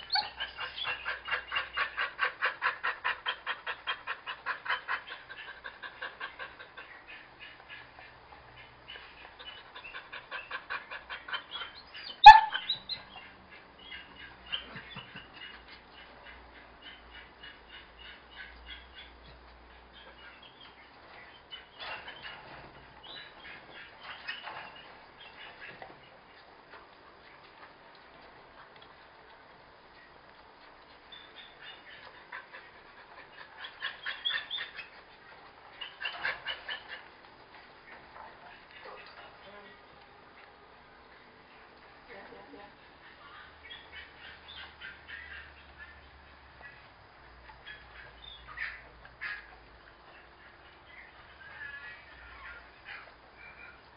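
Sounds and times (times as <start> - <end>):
dog yipping: 0.0 - 1.5, 11.2 - 13.1, 43.0 - 46.1
dog whining: 0.0 - 1.6, 11.2 - 13.1
dog barking: 12.2 - 12.8.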